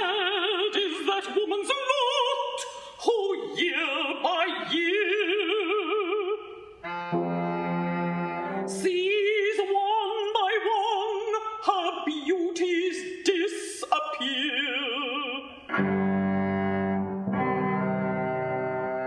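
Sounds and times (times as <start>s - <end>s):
operatic contralto singing: 0.0s - 6.7s, 8.7s - 16.0s
low accompaniment chords: 6.8s - 8.7s, 15.7s - 19.0s.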